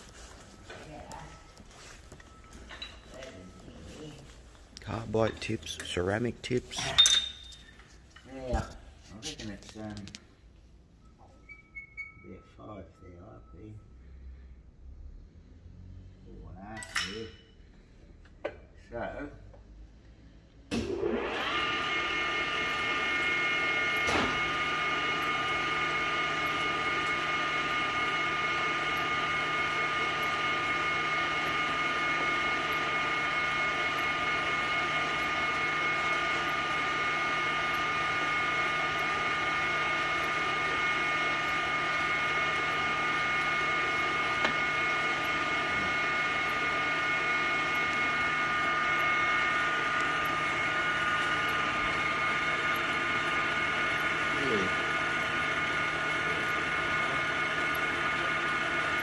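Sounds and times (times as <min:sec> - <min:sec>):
low lathe hum: 0:19.8 - 0:59.0
lathe gear whine: 0:20.8 - 0:59.0.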